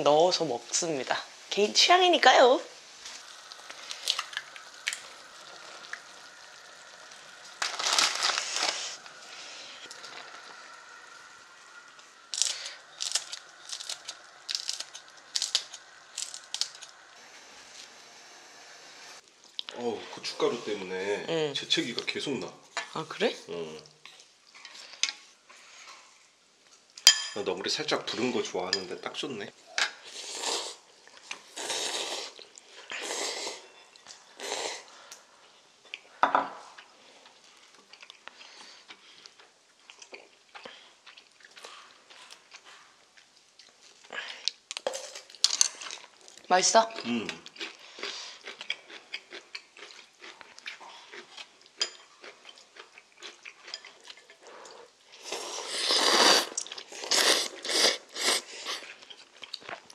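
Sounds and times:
slurping noodles: 0:30.1 - 0:33.7, 0:54.6 - 0:59.0.

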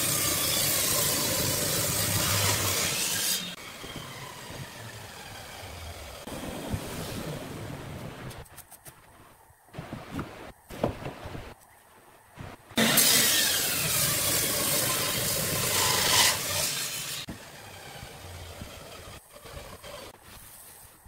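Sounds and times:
table saw cutting wood: 0:00.0 - 0:06.3, 0:12.8 - 0:20.2.

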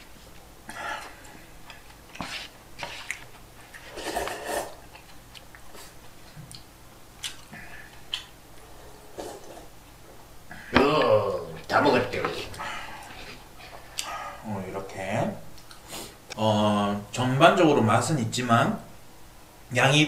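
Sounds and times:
chewing: 0:01.0 - 0:08.7.

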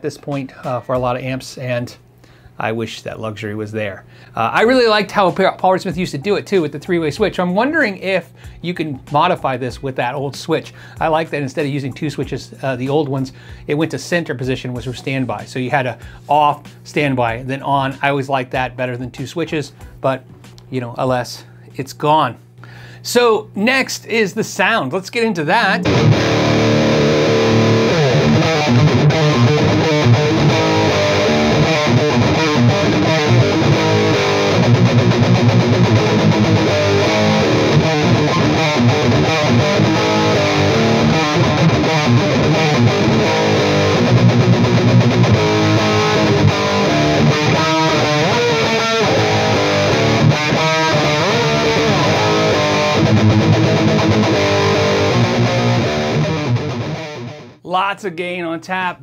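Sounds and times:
distorted electric guitar riffs: 0:25.5 - 0:57.6.

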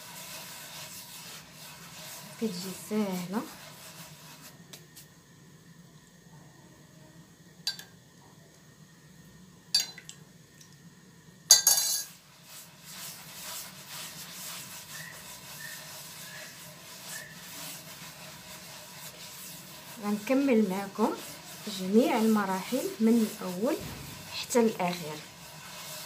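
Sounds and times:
hands rubbing flour in a dish: 0:00.0 - 0:05.2, 0:12.1 - 0:26.0.

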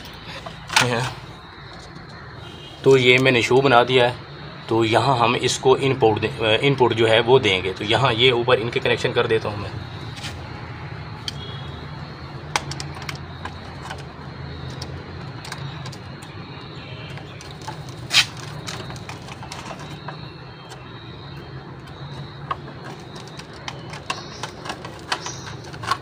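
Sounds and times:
clicks and knocks of wires: 0:00.0 - 0:02.2, 0:12.5 - 0:26.0.

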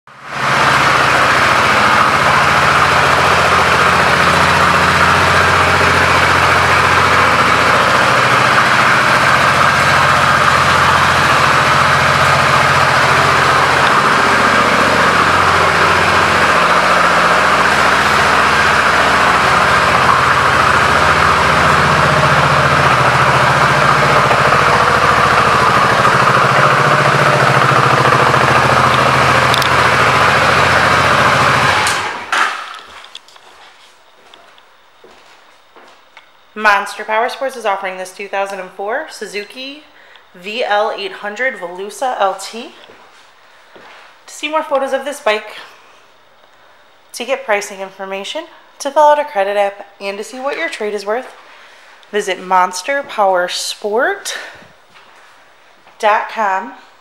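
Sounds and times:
motorcycle engine idling: 0:00.1 - 0:33.0.

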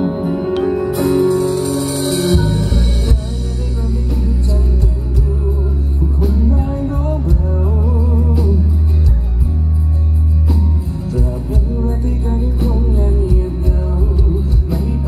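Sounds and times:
drums: 0:00.0 - 0:15.0
heavy bass line: 0:00.0 - 0:15.0
live band playing: 0:00.0 - 0:15.0
man singing: 0:02.0 - 0:09.7, 0:10.8 - 0:15.0.

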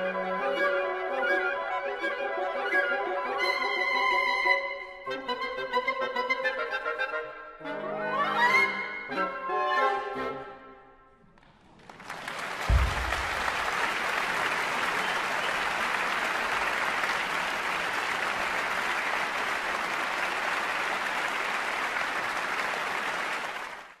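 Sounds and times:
audience applauding: 0:11.4 - 0:24.0
low thump: 0:12.6 - 0:13.8.

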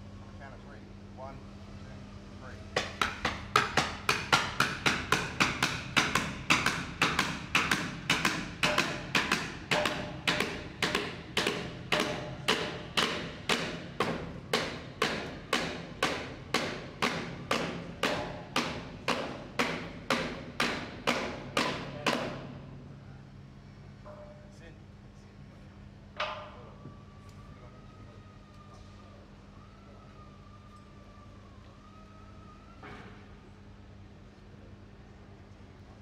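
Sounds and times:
hammer striking metal: 0:02.8 - 0:22.5.

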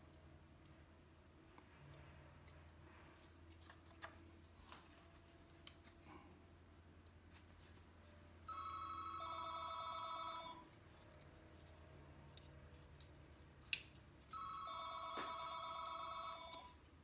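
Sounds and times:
telephone ringing: 0:08.5 - 0:10.7, 0:14.3 - 0:16.8.

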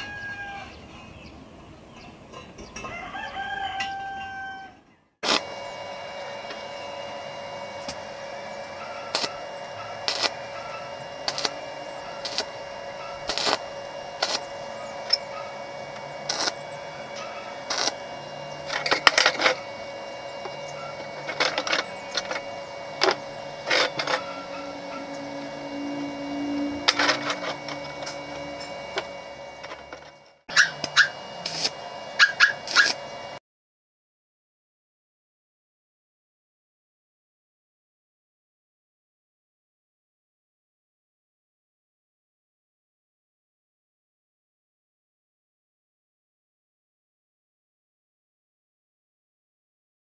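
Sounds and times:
electrical hum: 0:00.0 - 0:33.4.

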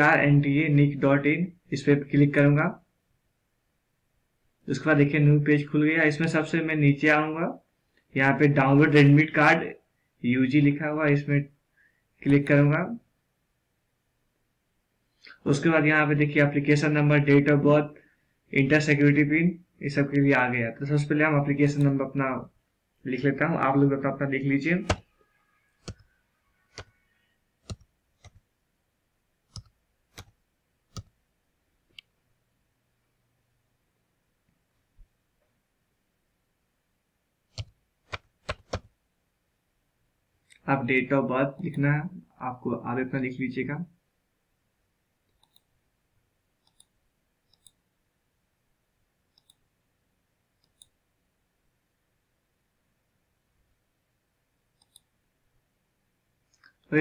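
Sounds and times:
computer mouse clicking: 0:24.8 - 0:25.0, 0:25.8 - 0:26.1, 0:26.7 - 0:26.9, 0:27.6 - 0:28.5, 0:29.5 - 0:31.2, 0:37.5 - 0:38.9, 0:45.3 - 0:45.7, 0:46.6 - 0:46.9, 0:47.5 - 0:47.8, 0:49.3 - 0:49.6, 0:50.6 - 0:51.0, 0:54.8 - 0:55.1
keyboard keys clicking: 0:37.5 - 0:38.9.

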